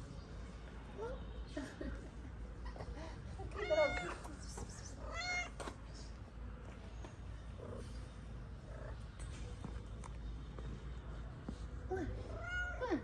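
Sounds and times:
cat meowing: 0:05.0 - 0:05.6.

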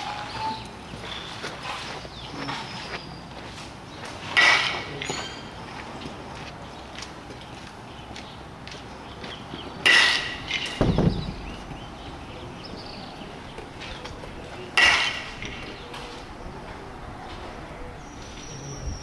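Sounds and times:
metal bat hitting ball: 0:04.4 - 0:05.4, 0:09.8 - 0:11.6, 0:14.8 - 0:15.7
dull thump: 0:10.8 - 0:12.0.

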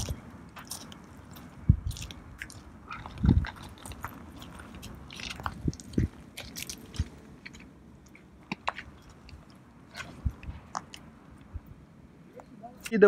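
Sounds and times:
footsteps crunching on gravel: 0:00.0 - 0:11.1.

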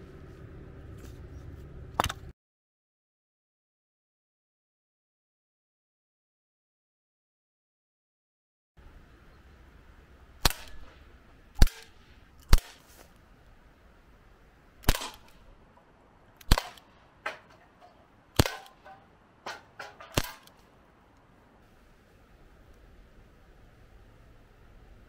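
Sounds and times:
air pistol shots: 0:10.4 - 0:13.0, 0:14.8 - 0:15.5, 0:16.4 - 0:17.6, 0:18.3 - 0:20.7.

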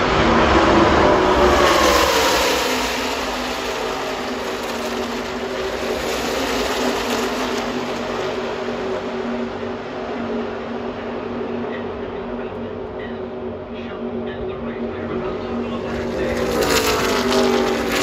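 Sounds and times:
race trucks passing: 0:00.0 - 0:18.0.

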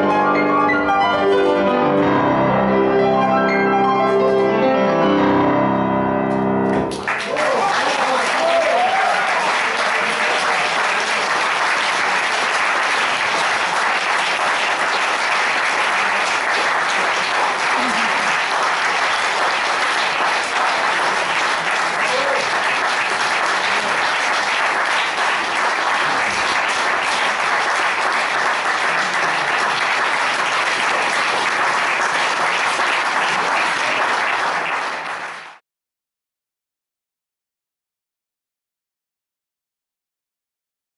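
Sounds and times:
small group applauding: 0:06.7 - 0:35.6.

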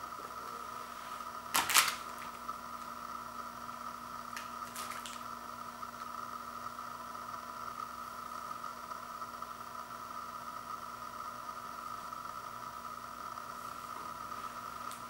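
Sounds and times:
electrical hum: 0:00.0 - 0:15.0
steady hiss: 0:00.0 - 0:15.0.

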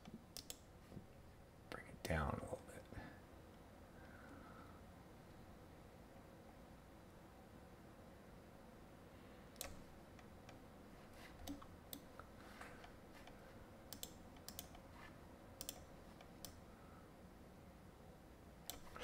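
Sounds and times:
computer mouse clicks: 0:00.0 - 0:00.7, 0:09.6 - 0:10.6, 0:11.4 - 0:14.9, 0:15.6 - 0:16.6, 0:18.6 - 0:19.0.

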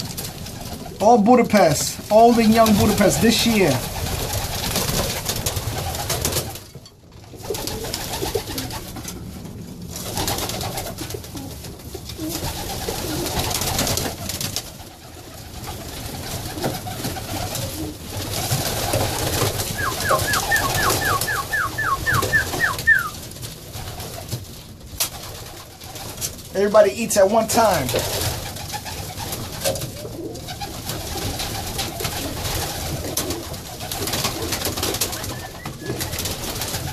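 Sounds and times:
wings beating: 0:00.0 - 0:36.9
pigeons cooing: 0:07.3 - 0:24.3, 0:28.0 - 0:36.9
short high peeps: 0:19.8 - 0:23.2.

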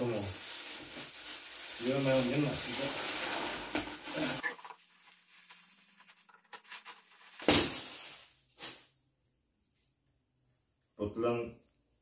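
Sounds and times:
gift wrapping crinkling: 0:00.0 - 0:08.8
wrapping paper ripping: 0:00.0 - 0:08.8.

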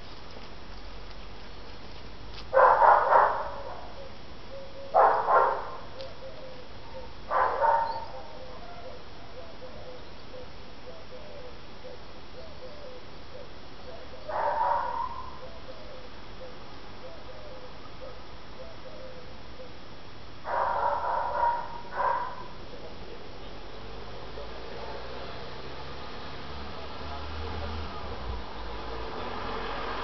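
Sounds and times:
dog barking: 0:02.5 - 0:04.0, 0:05.0 - 0:05.9, 0:07.3 - 0:09.0, 0:14.3 - 0:15.4, 0:20.5 - 0:22.6.

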